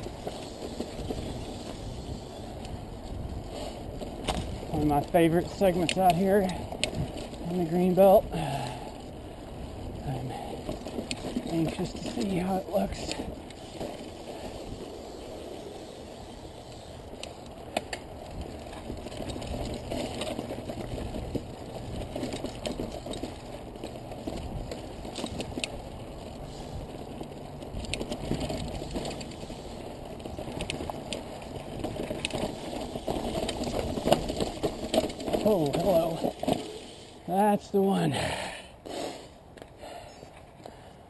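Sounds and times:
bike clicks and knocks over rocks: 0.0 - 37.2
bike tyres rumbling on rocky dirt: 0.0 - 38.4.

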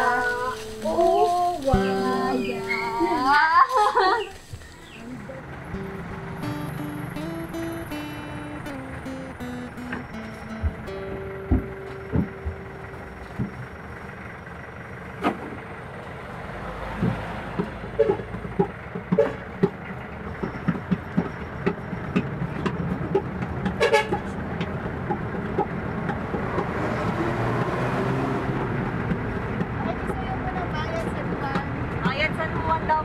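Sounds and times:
engine and road noise: 0.0 - 33.0
sharp clicks and knocks: 17.0 - 26.9.

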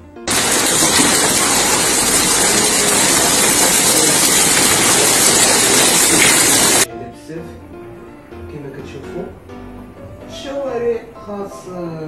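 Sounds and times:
heavy rain and hail on pavement: 0.3 - 6.9.

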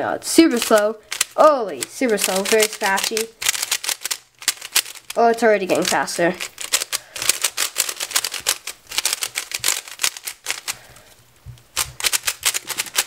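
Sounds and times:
plastic puzzle cube clicking: 0.5 - 10.8, 11.7 - 13.0.

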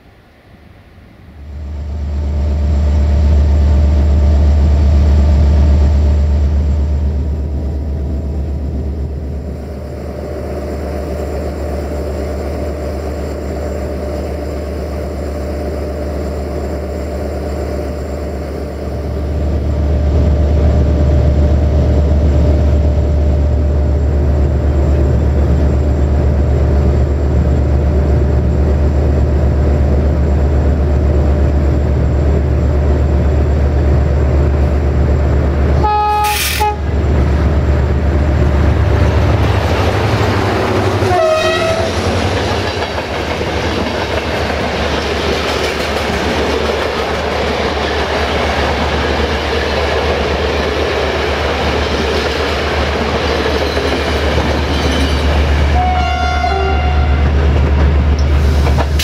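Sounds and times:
train coaches clickety-clack: 10.0 - 59.0
low engine drone: 16.0 - 42.7
train horn: 35.8 - 36.9, 40.9 - 42.1, 55.7 - 57.4.

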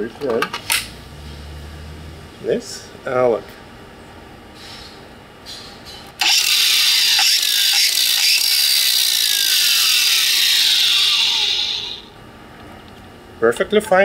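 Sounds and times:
angle grinder whining: 6.2 - 12.2.

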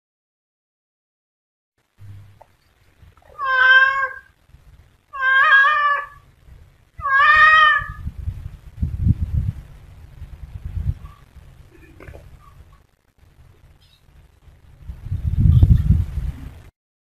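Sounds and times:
cat meowing: 3.2 - 4.3, 5.1 - 6.2, 7.0 - 8.0.

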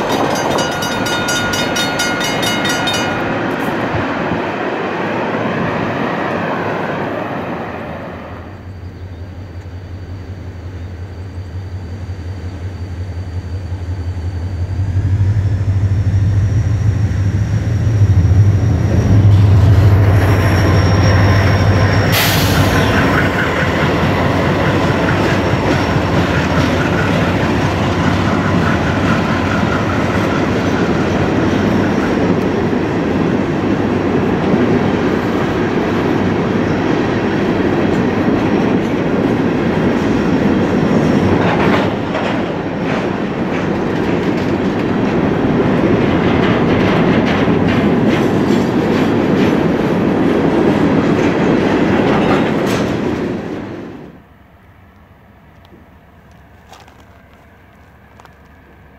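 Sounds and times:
freight cars rumbling past: 0.0 - 54.0
diesel locomotive engines: 0.0 - 58.9
faint wheel squeal: 19.7 - 23.6.

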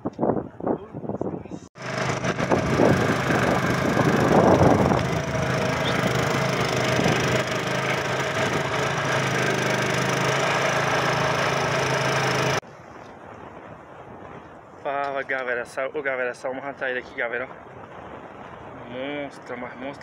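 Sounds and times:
rush of wind or water: 0.0 - 20.0
boat motor running: 1.8 - 12.6.

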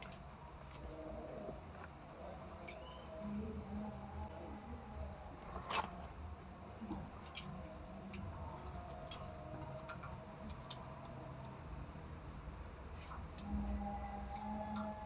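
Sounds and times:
metallic clicks of hand tools: 7.2 - 7.5, 8.9 - 10.9.

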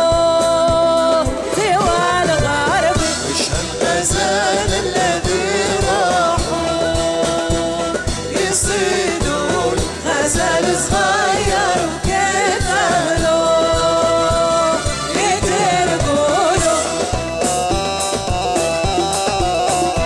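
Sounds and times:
woman singing folk song: 0.0 - 3.6, 8.4 - 17.1
live ensemble with percussion: 0.0 - 20.0.

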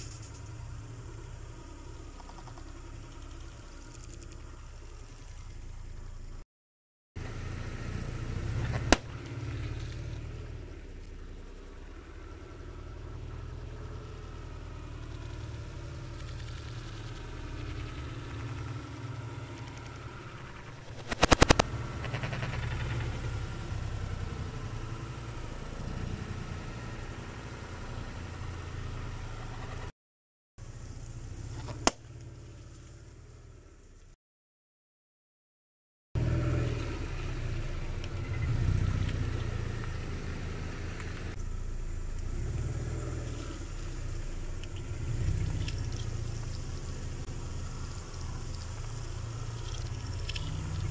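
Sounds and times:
car engine running: 0.0 - 6.4, 7.2 - 29.9, 37.0 - 50.9
sharp cracks: 8.7 - 9.4, 19.8 - 23.2.

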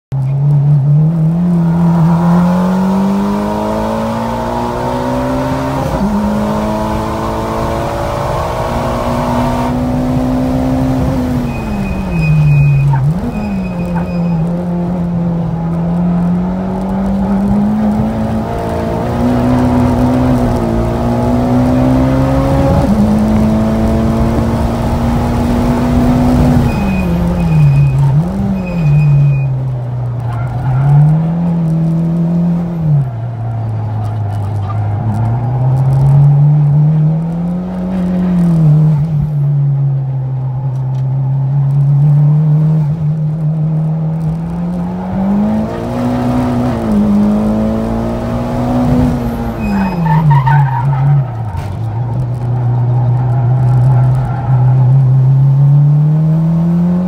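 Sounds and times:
car engine revving in cabin: 0.2 - 57.0.

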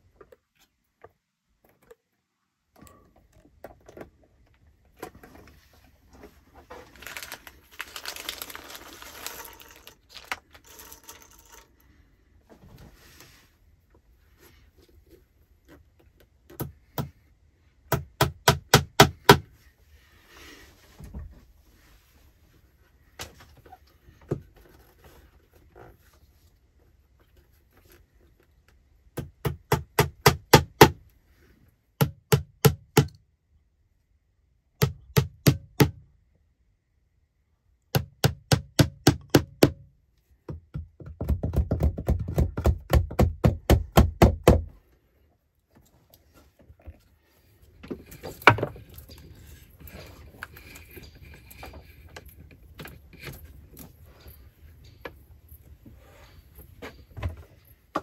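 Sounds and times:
handling and rustling: 2.9 - 16.5, 44.8 - 58.0
hammer tapping nails into wood: 17.9 - 19.4, 32.0 - 33.2, 34.8 - 36.0, 37.9 - 39.8, 40.5 - 44.7.

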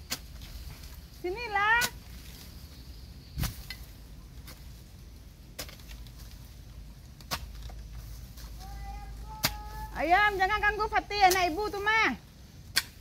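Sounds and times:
hoe chopping into soil: 3.4 - 4.7, 7.2 - 7.8, 9.4 - 9.7, 12.7 - 13.0.

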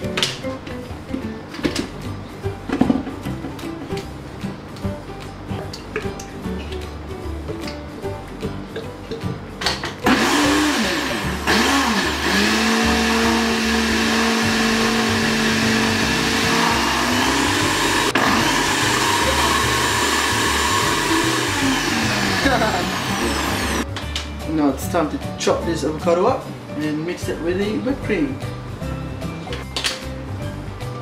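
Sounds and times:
blender motor whipping cream: 10.0 - 23.8.

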